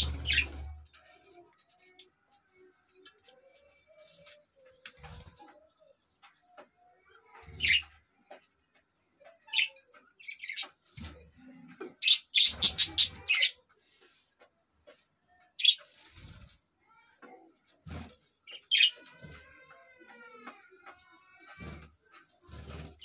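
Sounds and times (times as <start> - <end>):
budgerigars chirping: 0.0 - 0.5, 12.0 - 13.6.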